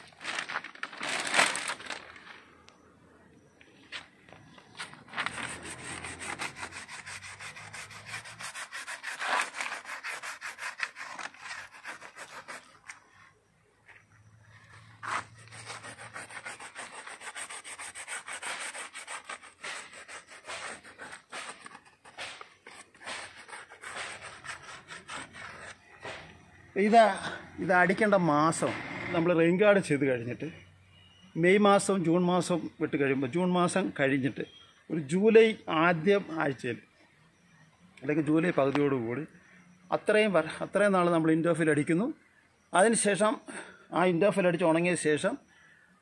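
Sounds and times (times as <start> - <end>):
coir pad scrubbing bark: 5.3 - 13.0, 14.6 - 26.2.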